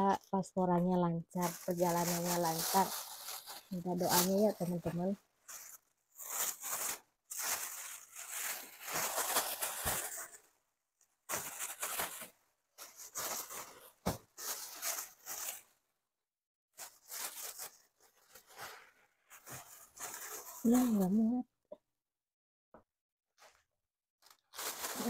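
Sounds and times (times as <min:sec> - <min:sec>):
plastic bags crinkling: 0:01.3 - 0:10.5, 0:11.3 - 0:15.7, 0:16.8 - 0:21.2, 0:24.2 - 0:25.0.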